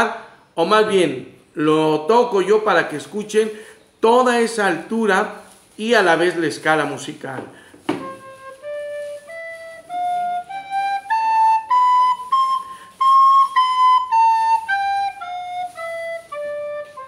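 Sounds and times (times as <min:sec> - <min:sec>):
recorder playing a scale: 0:07.9 - 0:17.0.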